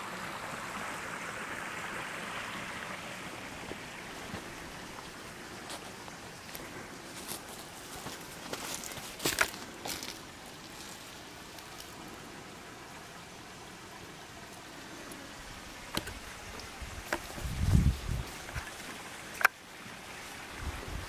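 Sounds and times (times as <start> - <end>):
wind rumble on microphone: 16.3 - 18.8, 20.5 - 21.0.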